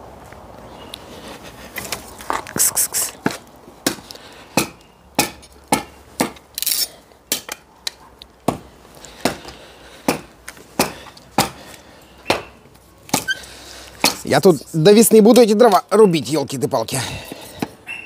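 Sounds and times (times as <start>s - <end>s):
hatchet chopping firewood: 3.2s - 14.3s.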